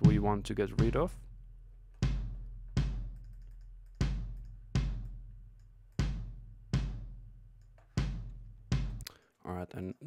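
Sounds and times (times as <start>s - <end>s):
kick drum hits: 0.0s - 1.2s, 2.0s - 3.2s, 4.0s - 5.2s, 6.0s - 7.3s, 8.0s - 9.0s.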